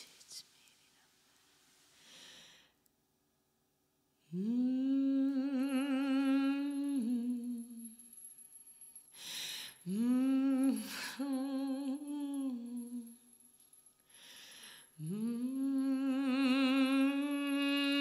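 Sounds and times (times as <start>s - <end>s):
sharp breath in: 2.0s - 2.8s, 9.1s - 9.8s, 14.1s - 15.0s.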